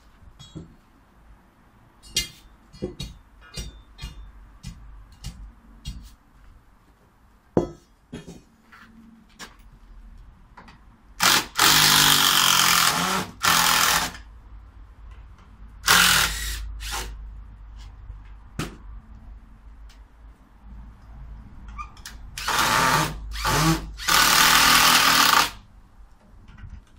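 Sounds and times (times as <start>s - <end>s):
cordless drill drilling into wood: 11.2s - 14.2s, 15.8s - 17.1s, 22.4s - 25.6s.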